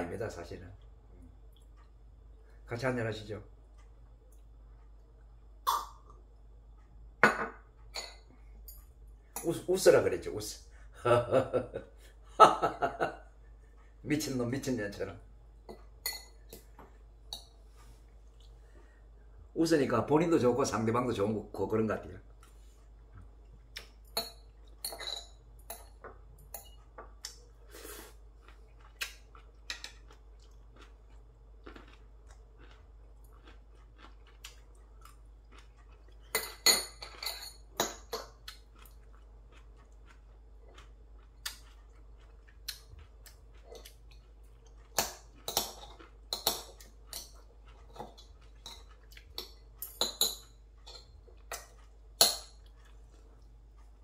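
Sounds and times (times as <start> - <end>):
chopsticks clinking on plates: 24.1 - 27.1.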